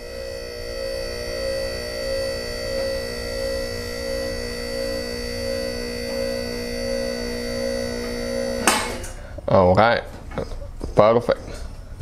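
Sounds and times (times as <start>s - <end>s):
hydraulic pump humming and whirring: 0.0s - 9.5s.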